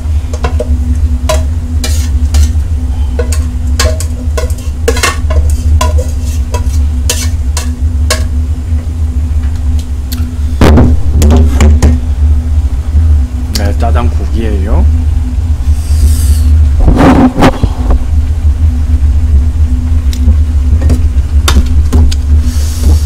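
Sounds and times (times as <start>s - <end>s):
steady low hum: 0.0s - 23.0s
utensil stirring: 0.3s - 2.6s, 3.2s - 8.3s
metal cookware clinking: 3.2s - 8.3s.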